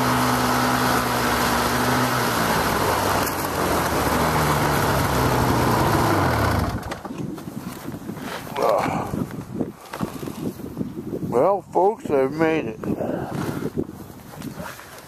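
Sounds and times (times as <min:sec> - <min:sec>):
snowmobile engine idling: 0:00.0 - 0:07.0.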